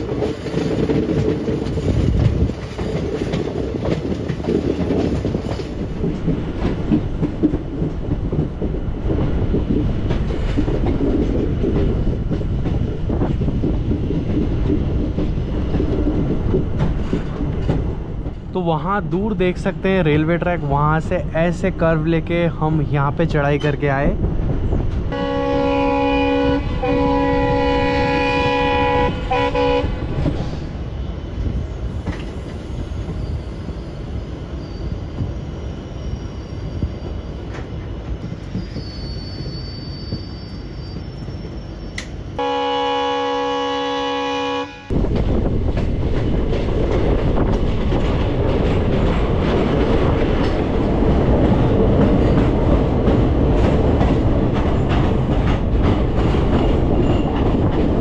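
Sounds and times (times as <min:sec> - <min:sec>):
train wheels on track: 0:00.0 - 0:58.0
diesel locomotive horn: 0:25.1 - 0:30.2, 0:42.4 - 0:45.0.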